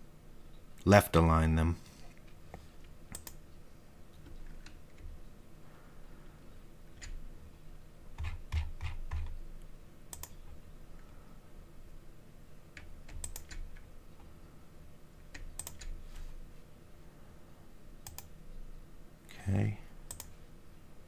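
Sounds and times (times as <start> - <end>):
computer mouse clicks: 3.1 - 3.4, 10.1 - 10.6, 12.7 - 13.9, 15.3 - 16.0, 18.0 - 18.3, 20.1 - 20.4.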